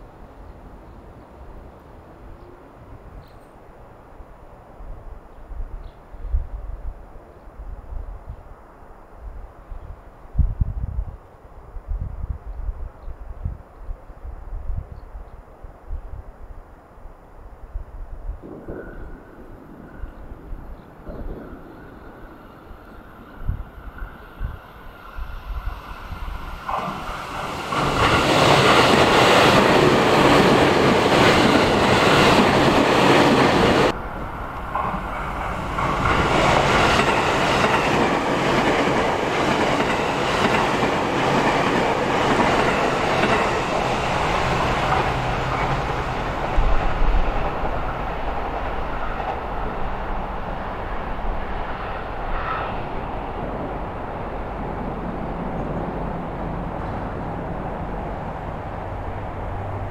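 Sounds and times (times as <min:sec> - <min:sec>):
train passing at speed: 0:17.8 - 0:59.9.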